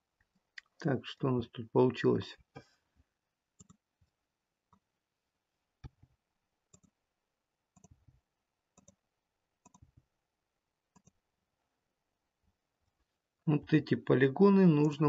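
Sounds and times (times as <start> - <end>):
computer mouse clicks: 3.6 - 3.8, 6.7 - 7.0, 7.8 - 8.0, 8.8 - 9.0, 9.6 - 10.0, 10.9 - 11.2.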